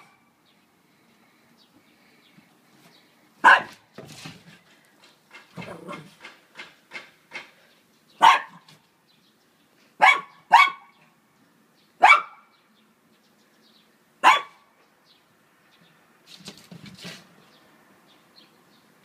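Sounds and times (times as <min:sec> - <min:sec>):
small dog barking: 0:03.4 - 0:03.8, 0:08.2 - 0:08.7, 0:10.0 - 0:11.0, 0:12.0 - 0:12.4, 0:14.2 - 0:14.6.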